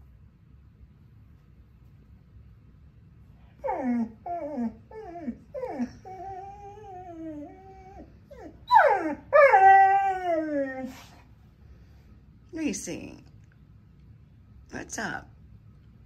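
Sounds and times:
dog yelping: 0:03.6 - 0:11.1
dog whining: 0:03.6 - 0:11.2.

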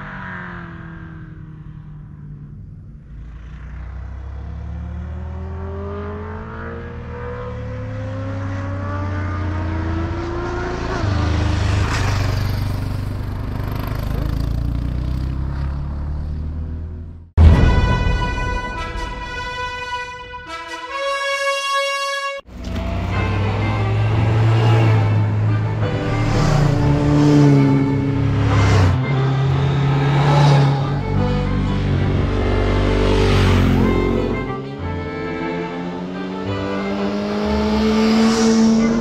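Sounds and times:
motorcycle engine accelerating: 0:00.0 - 0:17.3, 0:22.5 - 0:39.0
music: 0:17.4 - 0:27.0, 0:29.0 - 0:33.2, 0:33.8 - 0:37.8.

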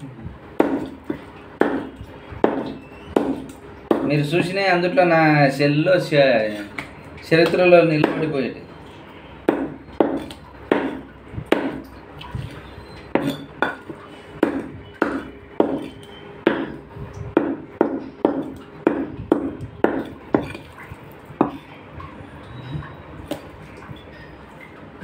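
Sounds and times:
cleaver chopping on a block: 0:00.6 - 0:01.0, 0:01.6 - 0:04.1, 0:09.5 - 0:11.8, 0:14.4 - 0:16.8, 0:17.4 - 0:20.5.

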